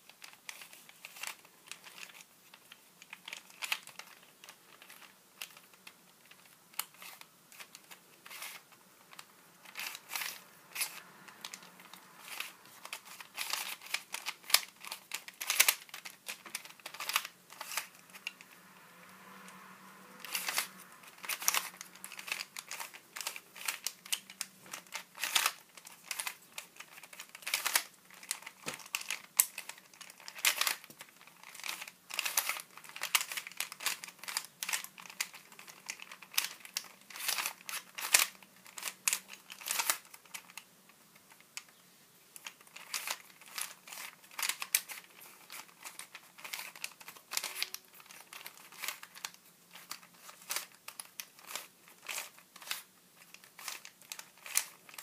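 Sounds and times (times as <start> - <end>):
puzzle layers clicking and clacking: 42.4 - 55.0.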